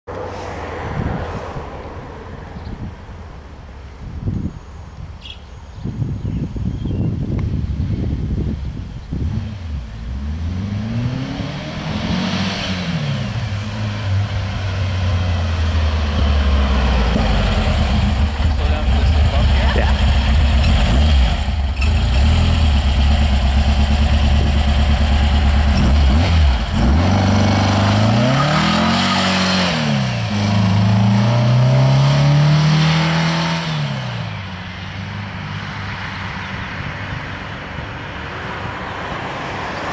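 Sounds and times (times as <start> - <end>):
car engine accelerating: 9.2 - 34.4.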